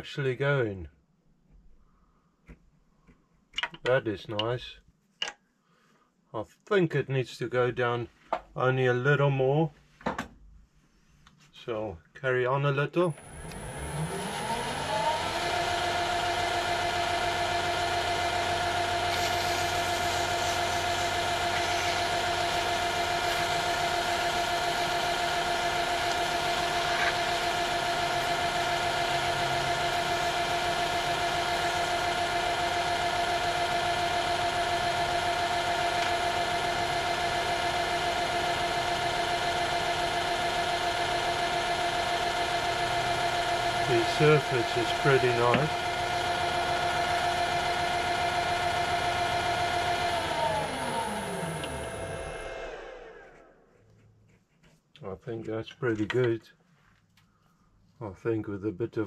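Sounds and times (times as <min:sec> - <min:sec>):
metal lathe whining: 0:13.2 - 0:53.5.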